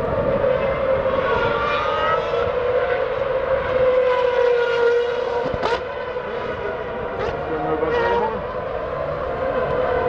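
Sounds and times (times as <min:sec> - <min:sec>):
race car engines screaming: 0:00.0 - 0:10.0.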